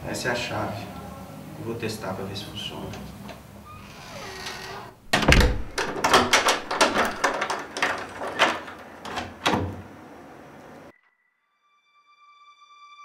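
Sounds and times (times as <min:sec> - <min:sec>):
door lock and handle clicking: 0:04.2 - 0:10.0.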